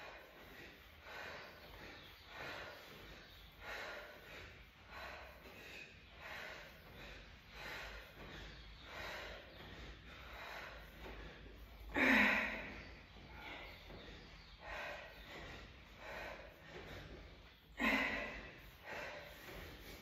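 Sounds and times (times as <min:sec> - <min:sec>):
woman breathing hard: 0:00.0 - 0:20.0.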